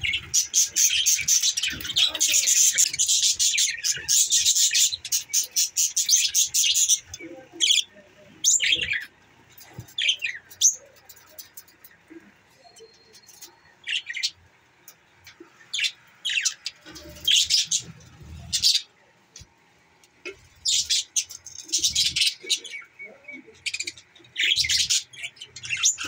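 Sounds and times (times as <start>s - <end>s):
budgerigars chirping: 0.0s - 11.6s, 20.6s - 26.0s.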